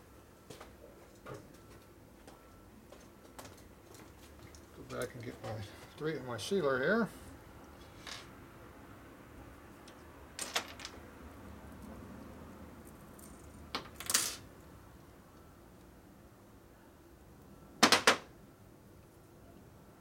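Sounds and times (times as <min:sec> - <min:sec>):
small metal objects clinking: 0:10.4 - 0:11.0.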